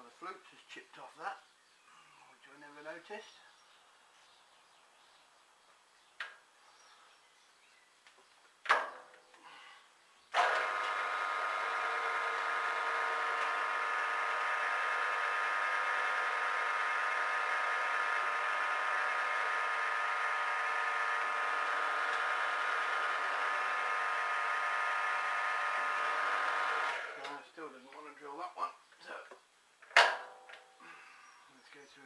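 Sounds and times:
mill-drill whine: 10.4s - 27.2s.

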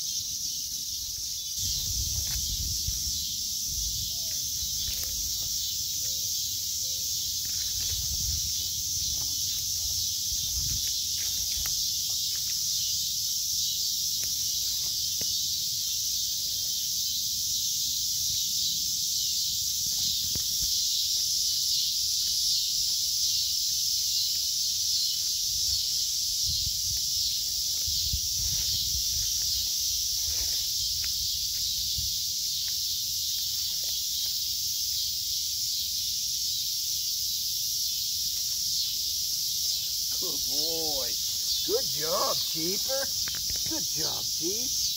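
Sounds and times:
insects chorus: 0.0s - 44.9s
rustling through undergrowth: 27.3s - 31.6s.

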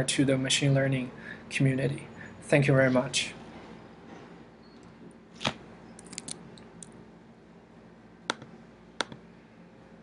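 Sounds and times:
faint room hiss: 0.0s - 10.0s
computer mouse and keys clicking: 4.8s - 7.0s, 8.3s - 9.2s.

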